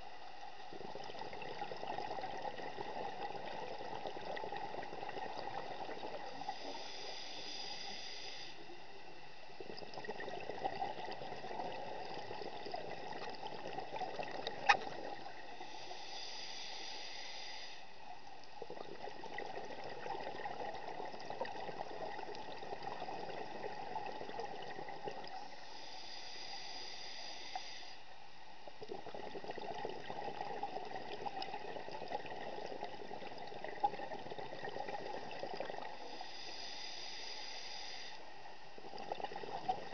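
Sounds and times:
bubbling exhale: 0.6 - 8.8, 28.8 - 39.9
scuba regulator hissing inhale: 6.2 - 8.8, 15.4 - 18.0, 25.4 - 28.1, 35.8 - 38.3.

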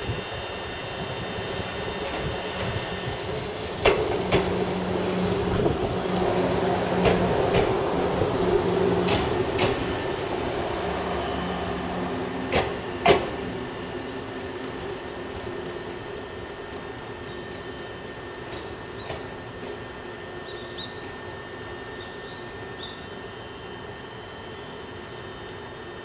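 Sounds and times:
train running gear rumble and hum: 0.0 - 26.0
train wheels clicking over rail joint: 3.8 - 4.8, 7.0 - 7.8, 9.0 - 10.1, 12.4 - 13.6.

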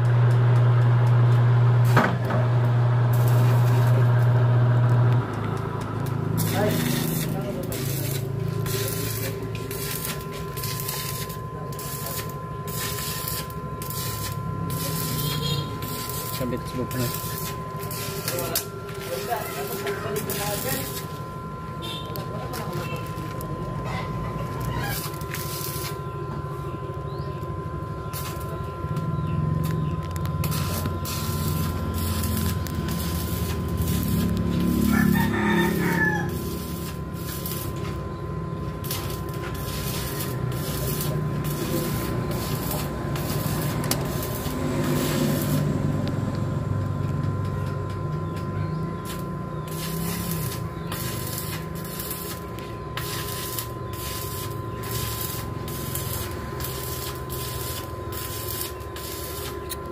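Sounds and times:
steady low hum: 0.0 - 59.9
thin high tone: 6.4 - 45.9
rooster crowing: 34.6 - 36.9.

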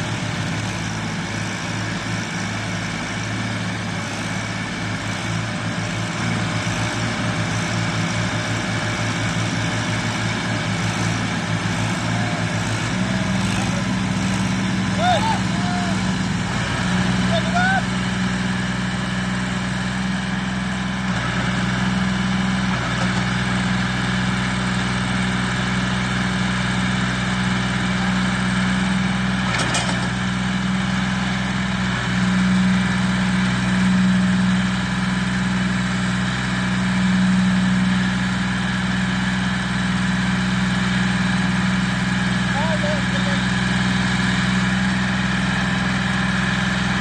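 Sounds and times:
tractor diesel engine under load: 0.0 - 47.0.

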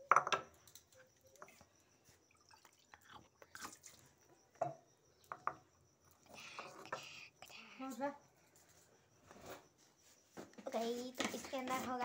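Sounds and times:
faint water drips: 0.6 - 5.4.

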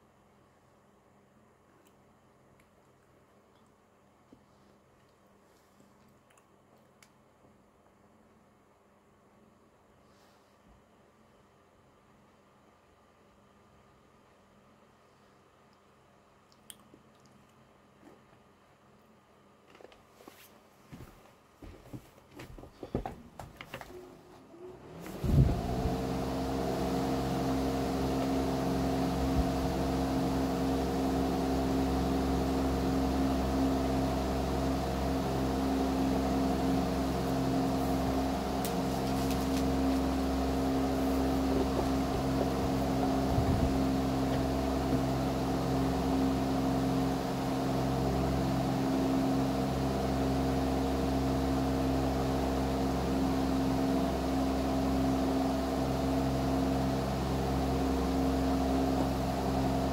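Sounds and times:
laptop cooling fan humming: 20.9 - 59.9.

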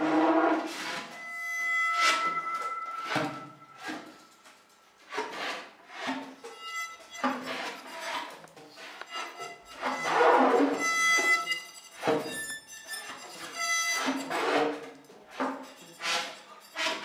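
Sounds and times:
scraped and bowed gestures: 0.0 - 17.0
high held tone: 1.1 - 4.6.

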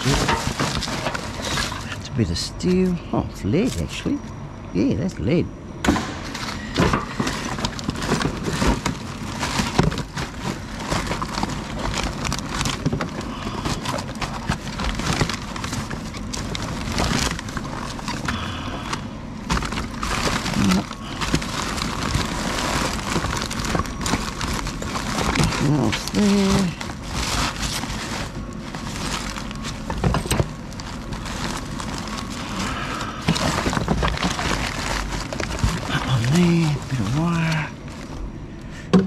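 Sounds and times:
scrap clattering against metal bin: 0.0 - 2.0
plastic bags crinkling: 0.0 - 4.2, 6.2 - 38.4.

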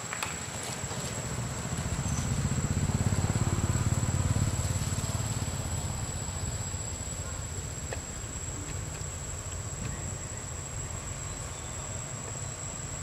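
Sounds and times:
steady high-pitched whine: 0.0 - 13.0
passing vehicle engine rumble: 0.2 - 13.0.

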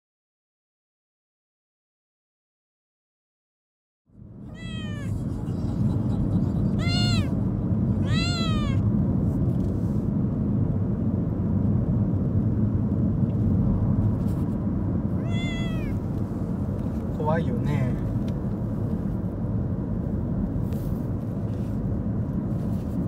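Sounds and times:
steady low rumble: 4.1 - 23.0
kitten meowing: 4.5 - 5.2, 6.7 - 7.4, 8.0 - 8.9, 15.2 - 16.0.

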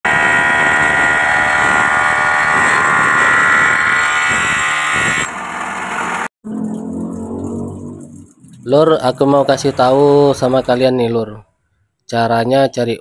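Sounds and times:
angle grinder cutting stone: 0.1 - 6.3.

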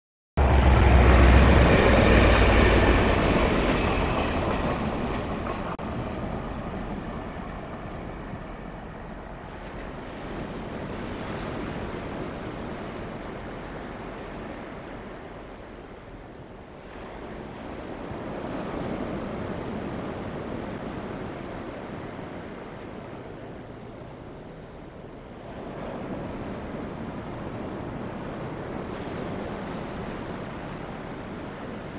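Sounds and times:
freight train moving away: 0.4 - 10.1.

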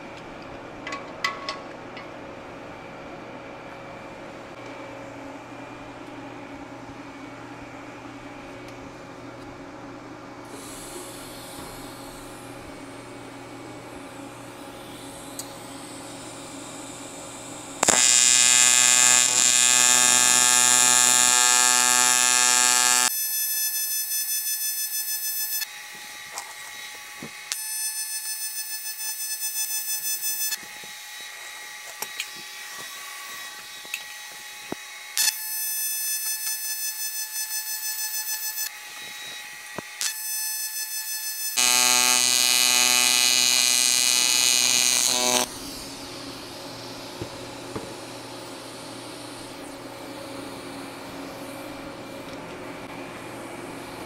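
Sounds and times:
steady hum: 4.2 - 23.1, 41.6 - 54.0
welding arc electrical buzz: 14.8 - 25.9, 33.8 - 38.8, 39.8 - 46.1.

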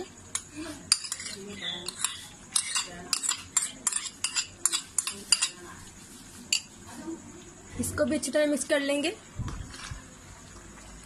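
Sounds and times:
spoon clicking and scraping: 0.3 - 5.6.

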